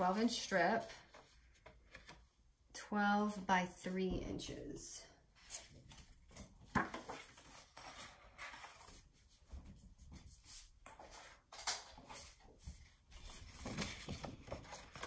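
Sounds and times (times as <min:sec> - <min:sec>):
paper and tools tapping and rustling: 0:00.0 - 0:02.3, 0:05.4 - 0:15.0.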